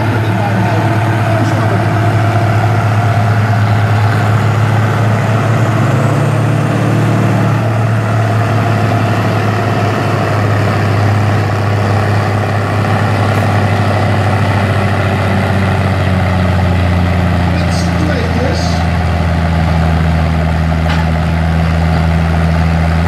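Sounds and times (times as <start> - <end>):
tractor diesel engines under load: 0.0 - 23.0.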